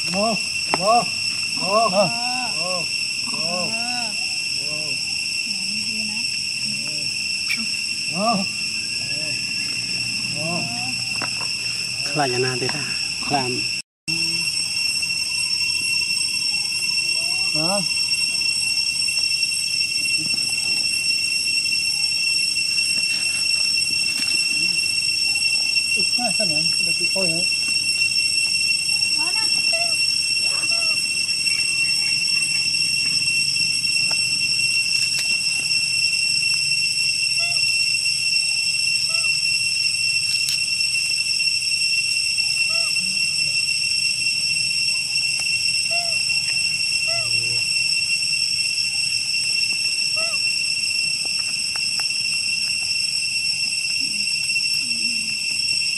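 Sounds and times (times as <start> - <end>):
rising and falling animal call: 0.0 - 5.1, 6.6 - 11.2, 29.2 - 32.6, 39.1 - 39.4, 42.6 - 43.4, 45.9 - 46.3, 47.0 - 47.6, 50.1 - 50.5
high-pitched insect drone: 0.0 - 55.9
steady high-pitched whine: 0.0 - 55.9.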